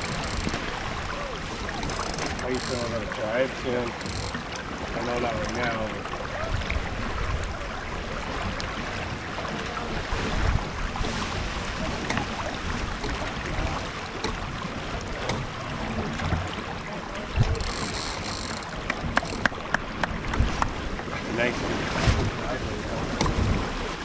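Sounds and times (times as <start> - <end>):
water splashing and sloshing: 0.0 - 24.0
wind buffeting microphone: 18.7 - 24.0.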